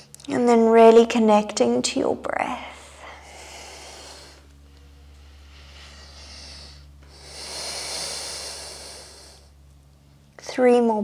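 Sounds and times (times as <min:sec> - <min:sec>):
woman breathing slowly: 0:02.6 - 0:09.6.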